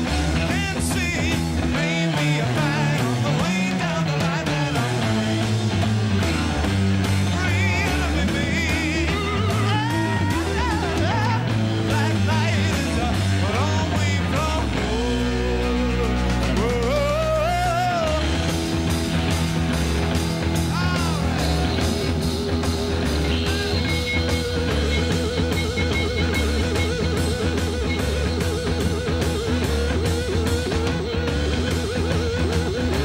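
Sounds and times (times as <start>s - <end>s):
rock band playing: 0.0s - 33.0s
electric guitar solo: 4.8s - 13.1s, 14.8s - 33.0s
vocal wail: 8.7s - 11.6s, 20.6s - 22.2s.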